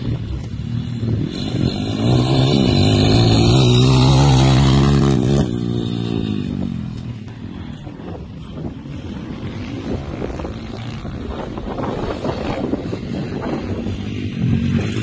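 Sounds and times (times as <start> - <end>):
motorbike engine revving past: 0.9 - 6.8.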